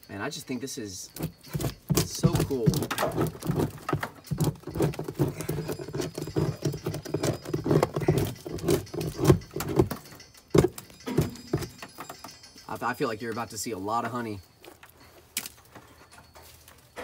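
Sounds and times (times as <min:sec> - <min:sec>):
bar knocking and scraping wood: 0:01.2 - 0:12.3.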